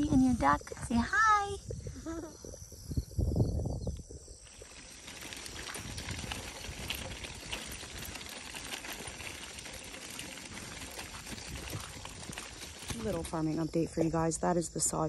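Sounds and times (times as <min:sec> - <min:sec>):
stroller wheels on gravel: 0:03.8 - 0:15.0
footsteps crunching on gravel: 0:04.4 - 0:14.2.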